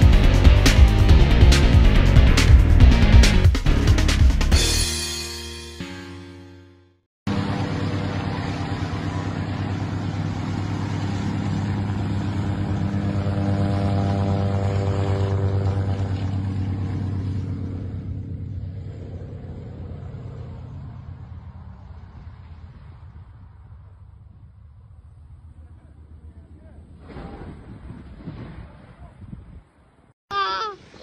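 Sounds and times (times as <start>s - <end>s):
radial aircraft engine droning: 7.3s - 27.0s.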